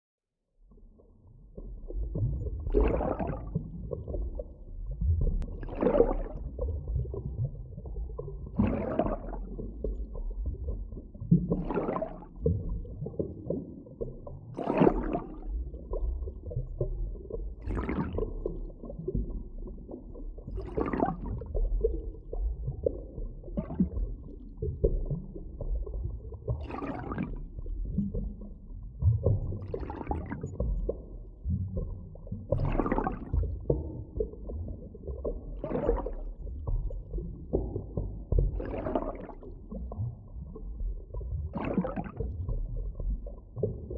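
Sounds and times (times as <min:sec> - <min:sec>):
underwater rumble of moving water: 0:00.4 - 0:43.9
underwater whoosh: 0:01.8 - 0:07.4, 0:08.4 - 0:13.6, 0:26.5 - 0:43.9.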